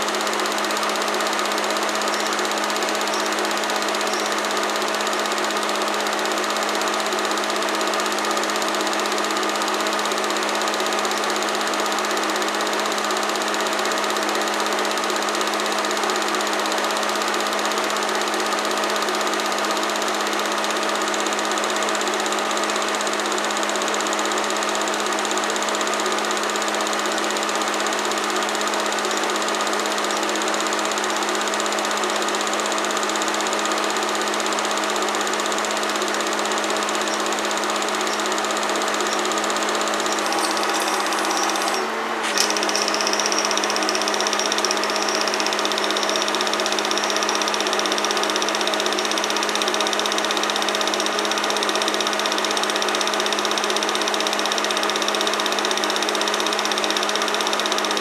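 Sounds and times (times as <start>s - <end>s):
film projector running: 0.0s - 58.0s.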